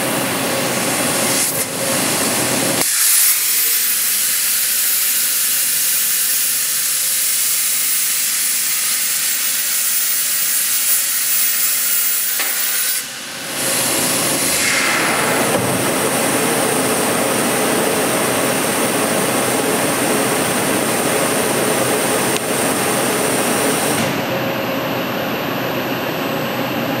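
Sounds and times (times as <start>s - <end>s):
plasma torch hissing: 2.8s - 16.6s.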